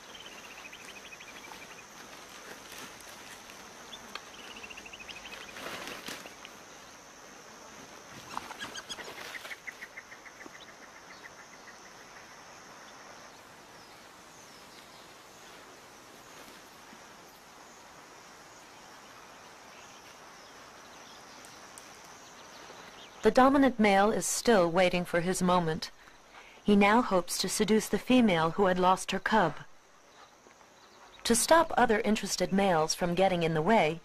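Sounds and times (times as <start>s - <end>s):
high drone of insects: 0.0s - 34.0s
rustles and clicks: 0.1s - 6.6s.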